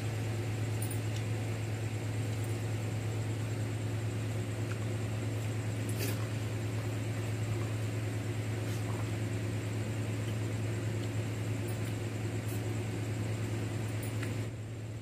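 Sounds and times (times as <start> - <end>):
faint high whine: 0.0 - 15.0
low machine hum: 0.0 - 15.0.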